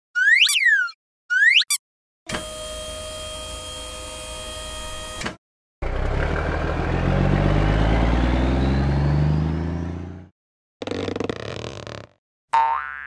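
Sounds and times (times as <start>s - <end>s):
cartoon truck engine revving: 5.8s - 12.2s.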